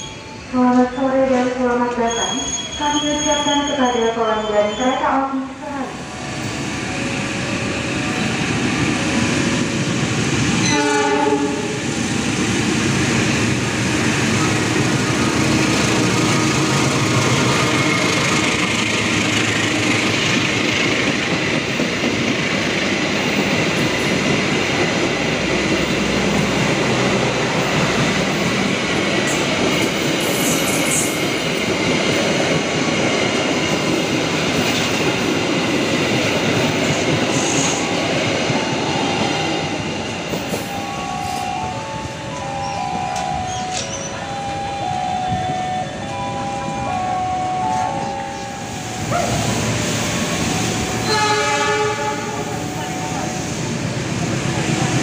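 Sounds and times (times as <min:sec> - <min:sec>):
train horn: 0:10.6 - 0:11.8, 0:51.0 - 0:52.6.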